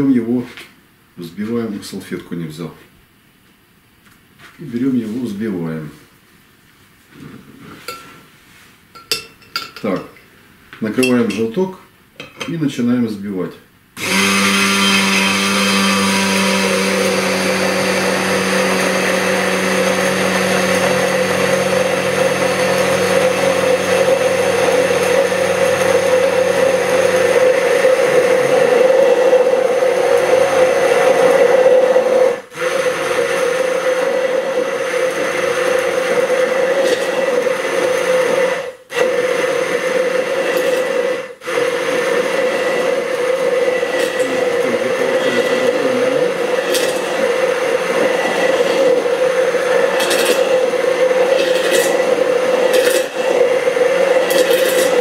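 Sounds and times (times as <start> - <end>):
immersion blender running: 14.0 - 55.0.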